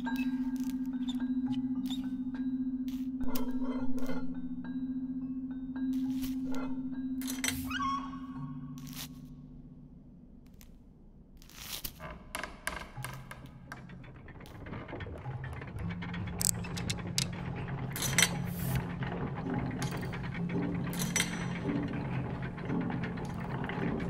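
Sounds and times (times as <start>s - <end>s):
clockwork gears clicking: 13.1s - 24.0s.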